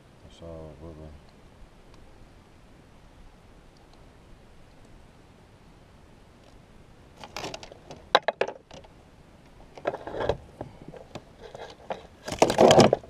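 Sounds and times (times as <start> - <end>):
clicks and knocks in a kayak: 7.2 - 8.9, 9.7 - 13.0
landing net rustling: 11.0 - 13.0.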